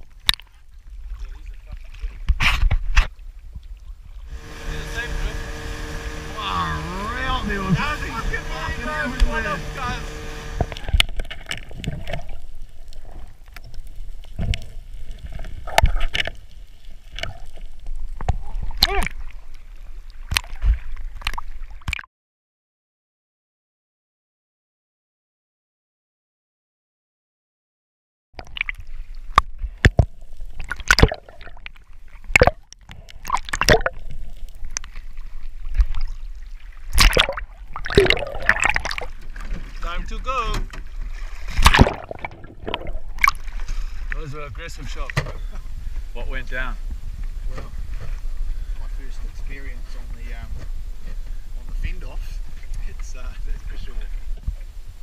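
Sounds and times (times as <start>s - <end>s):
underwater rumble: 3.2s - 21.9s, 28.6s - 55.0s
water splashing: 3.7s - 22.1s, 28.4s - 46.0s
boat engine running: 4.3s - 11.2s
underwater clicks and knocks: 28.4s - 35.0s.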